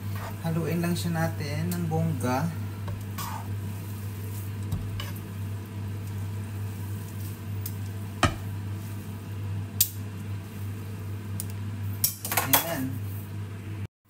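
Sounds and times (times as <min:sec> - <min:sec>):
faint sizzling: 0:00.0 - 0:13.6
steady low hum: 0:00.0 - 0:13.9
noodles tossed in frying pan: 0:02.8 - 0:12.4.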